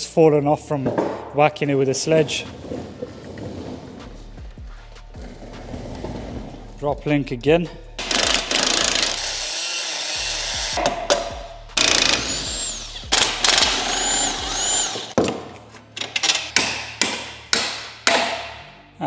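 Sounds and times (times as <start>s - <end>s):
impact wrench running in bursts: 8.0s - 10.8s, 11.8s - 15.2s.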